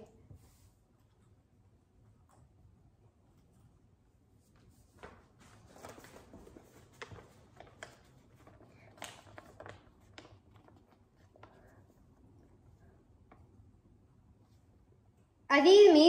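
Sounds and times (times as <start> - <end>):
paper card rustling and crackling: 4.7 - 12.3.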